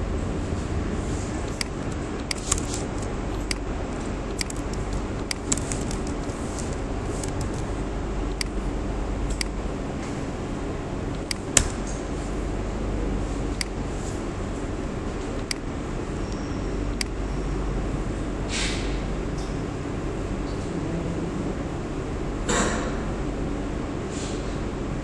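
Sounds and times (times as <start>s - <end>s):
low computer hum: 0.0s - 25.0s
keyboard keystrokes: 1.4s - 7.7s, 8.3s - 8.6s
mouse clicks: 1.5s - 3.7s, 4.3s - 6.2s, 8.3s - 8.6s, 15.4s - 15.6s, 16.3s - 17.2s.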